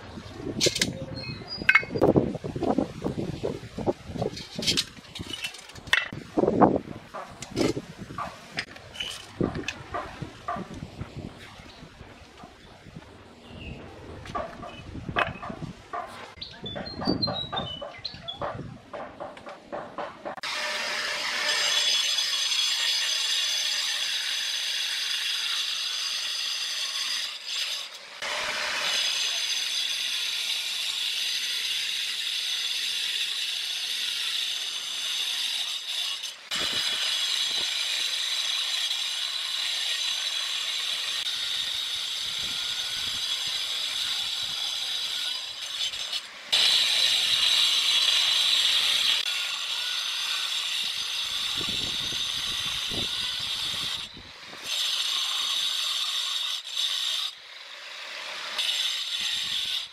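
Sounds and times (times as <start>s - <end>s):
angle grinder cutting stone: 20.4s - 59.9s.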